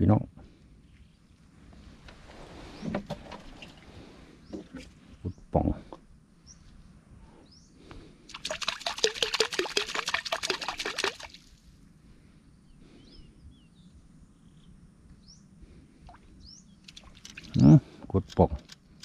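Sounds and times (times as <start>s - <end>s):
fish splashing in water: 8.3s - 11.5s
faint bird chirps: 12.4s - 17.8s.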